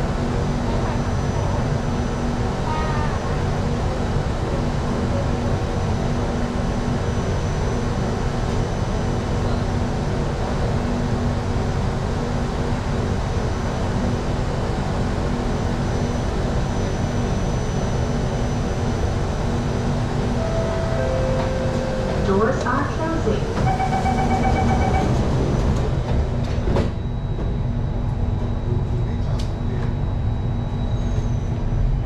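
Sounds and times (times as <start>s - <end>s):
train equipment humming: 14.8s - 32.0s
steady tone: 20.3s - 25.4s.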